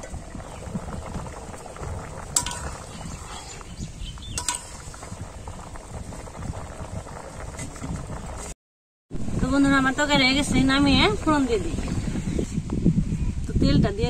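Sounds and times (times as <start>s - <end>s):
curry bubbling in a wok: 0.0s - 8.6s
metal spatula clinking on pan: 2.4s - 2.8s.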